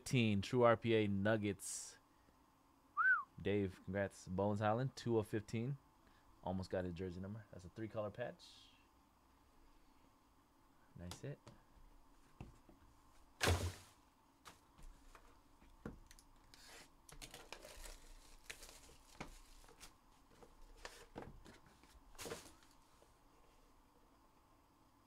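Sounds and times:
rustling card and packaging: 16.1 - 22.9.

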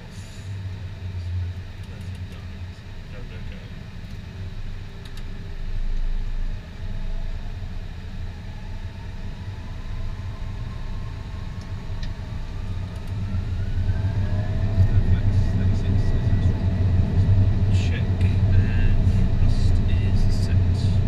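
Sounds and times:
low engine rumble: 0.0 - 21.0
jet engine whine rising: 4.4 - 21.0.

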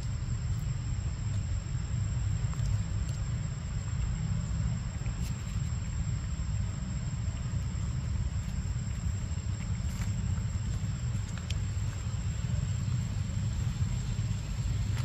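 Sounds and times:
faint high whine: 0.0 - 15.0
low outdoor rumble: 0.0 - 15.0.

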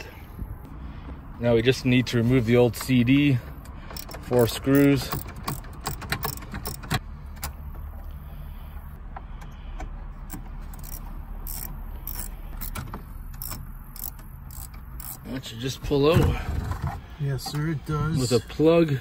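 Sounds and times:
screwdriver clicks and metal ticks: 3.9 - 7.0, 10.2 - 12.8, 13.4 - 15.2.

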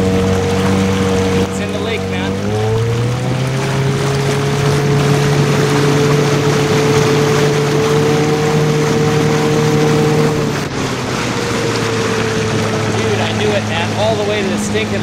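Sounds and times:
outboard motor running: 0.0 - 15.0
rushing water and wind: 0.0 - 15.0.

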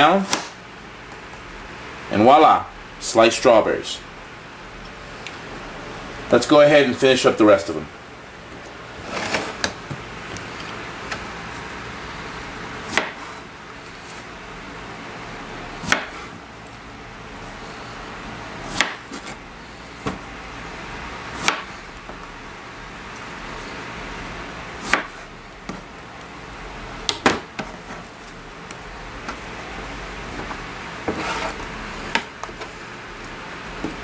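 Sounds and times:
scraping rustle: 31.1 - 31.7.

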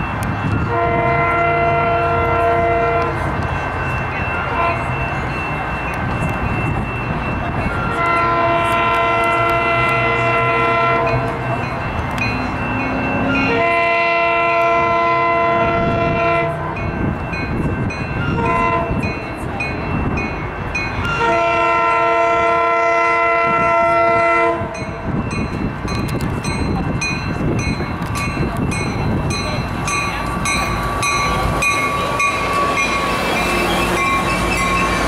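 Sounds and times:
train rumbling on track: 0.0 - 35.0
train horn blasts: 0.6 - 3.4, 4.5 - 5.0, 7.8 - 11.4, 13.3 - 16.8, 18.3 - 19.1, 21.0 - 25.0.

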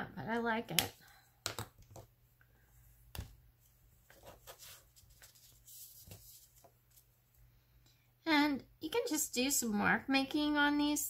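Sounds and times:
soft paper rustling: 3.6 - 7.5.

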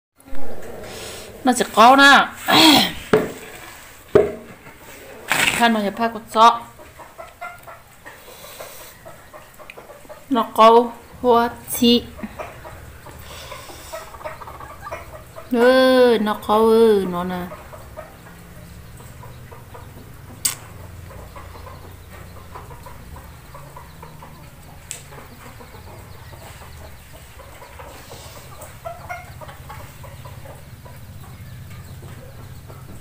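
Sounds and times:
low rumble: 0.2 - 3.6
faint bird calls: 0.2 - 3.9, 11.8 - 33.0
sharp click: 20.4 - 20.7.

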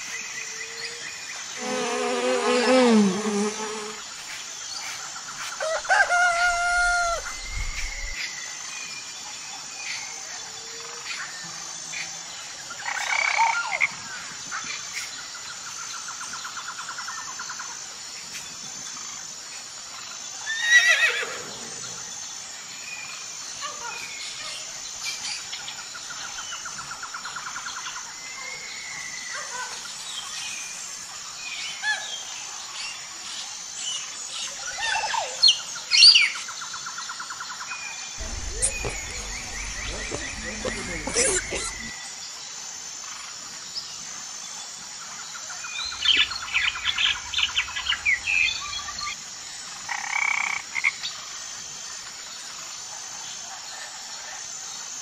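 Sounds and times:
high insect hum: 0.0 - 55.0
bird chirps and calls: 38.2 - 41.9.

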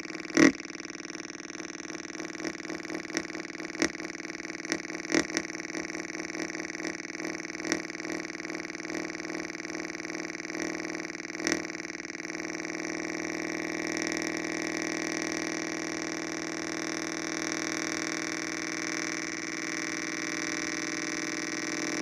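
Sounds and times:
buzzy electronic drone: 0.0 - 22.0.

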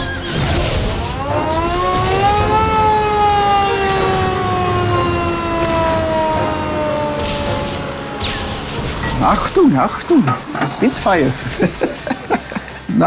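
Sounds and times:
hand-cranked air-raid siren wailing: 1.1 - 10.4.

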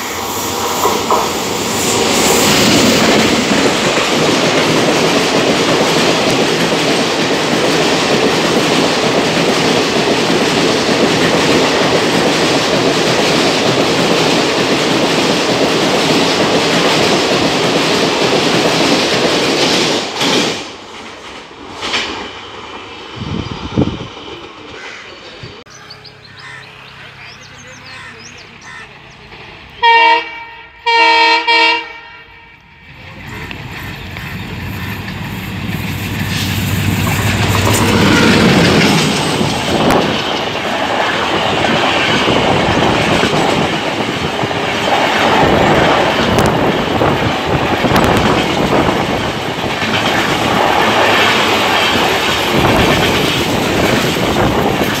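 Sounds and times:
train passing at speed: 0.0 - 55.0
clickety-clack of coaches: 3.1 - 22.2, 33.3 - 55.0.

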